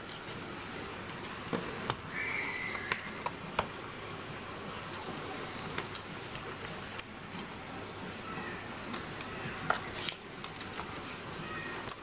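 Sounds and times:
paper rustling and clicks: 8.9s - 12.0s.

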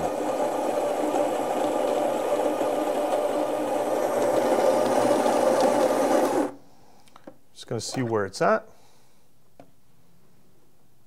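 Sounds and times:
coffee grinder running: 0.0s - 6.6s.

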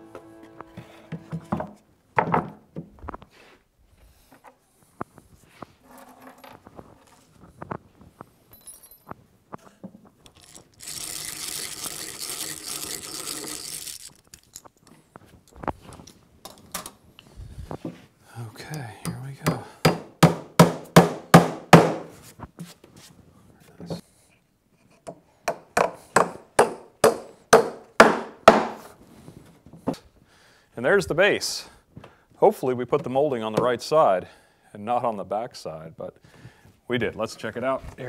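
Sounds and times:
drill boring into wood: 10.8s - 14.0s
hammer tapping a nail: 19.0s - 22.0s, 25.1s - 28.8s.

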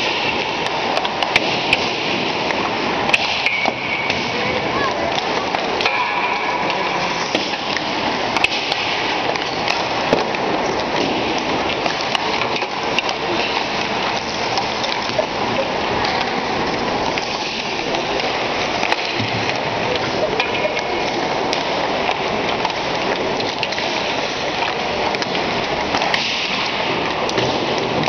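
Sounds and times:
arena noise: 0.0s - 28.0s
hockey pucks struck by sticks: 0.0s - 28.0s
pucks hitting boards and net: 0.0s - 28.0s
skate blades on ice: 0.0s - 28.0s
faint voices: 3.8s - 8.4s.

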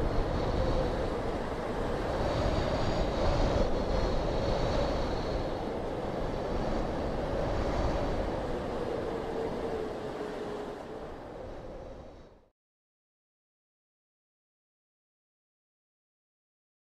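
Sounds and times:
rushing wind: 0.0s - 12.5s.

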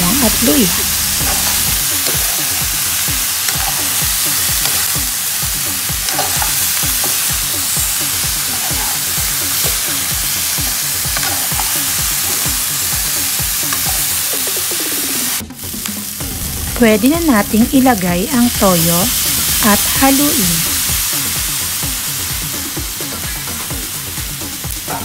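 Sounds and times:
steady low beat: 0.0s - 6.1s, 15.7s - 23.0s
frying in hot oil: 0.0s - 25.0s.

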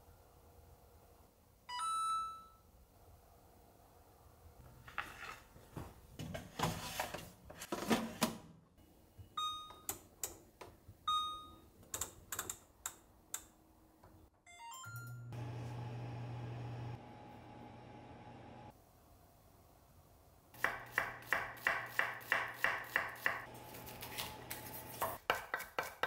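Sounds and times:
oven short beeps: 9.3s - 9.9s, 11.1s - 11.6s
oven low hum: 15.0s - 18.8s.

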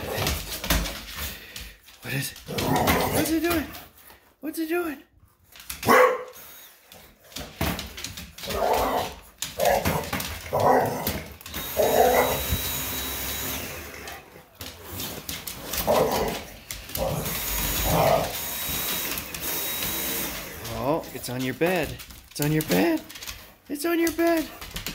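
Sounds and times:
dog barking: 5.8s - 6.4s
vacuum motor whine: 11.5s - 14.1s, 17.0s - 20.6s.

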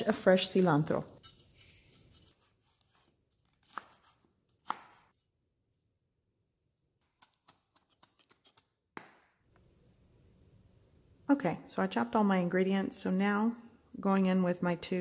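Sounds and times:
knife chopping on wooden board: 2.6s - 5.1s.

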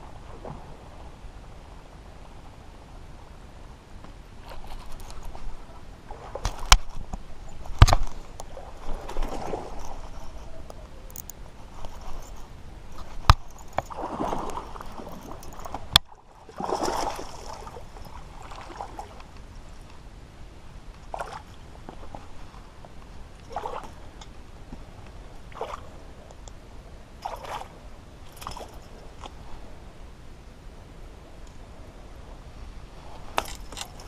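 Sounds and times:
water sloshing and splashing: 4.7s - 10.4s, 11.1s - 19.4s, 21.1s - 22.7s, 23.3s - 24.2s, 24.8s - 26.0s, 27.2s - 29.4s.

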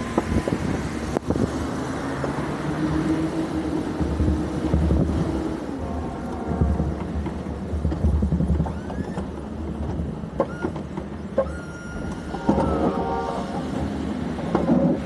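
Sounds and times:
short high whines: 11.4s - 13.8s.

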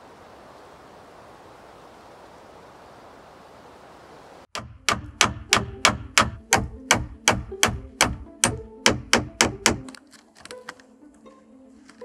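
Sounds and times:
hammer driving nail into wood: 4.6s - 10.0s.

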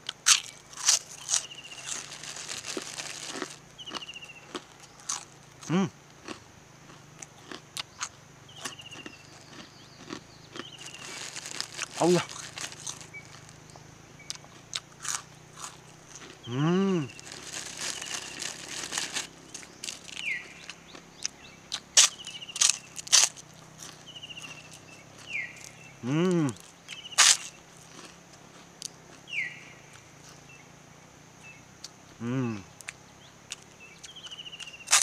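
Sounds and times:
plastic bag crinkling: 0.3s - 3.7s, 10.7s - 13.6s, 17.1s - 20.7s
man humming: 5.6s - 6.0s, 16.4s - 17.2s, 26.0s - 26.6s, 32.1s - 32.7s.

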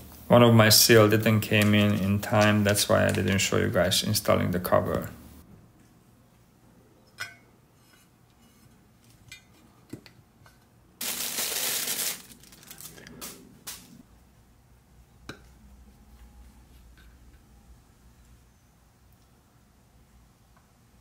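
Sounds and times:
loud hiss: 11.0s - 14.0s.

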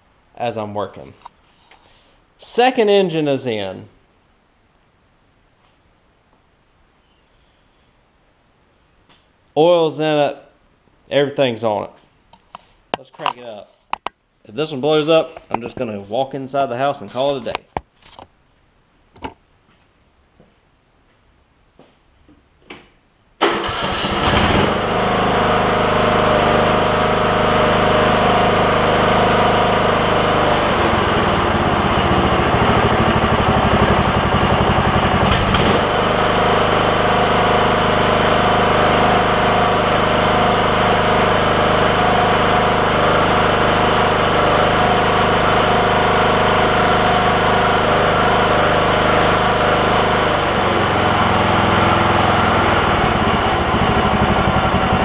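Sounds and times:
lawn mower engine cranking and running: 23.4s - 55.0s.

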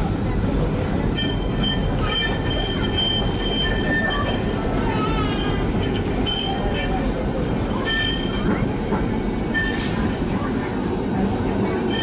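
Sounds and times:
tram rumbling on rails: 0.0s - 12.0s
high wheel squeal: 1.2s - 7.1s, 7.7s - 8.5s, 9.5s - 10.0s.

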